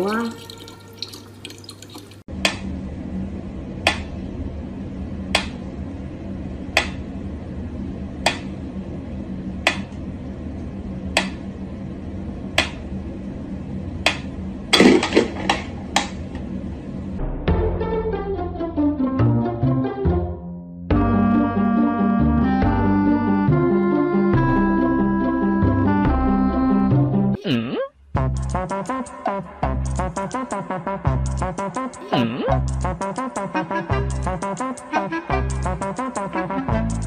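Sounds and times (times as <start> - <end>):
low steady hum: 0.0 - 17.3.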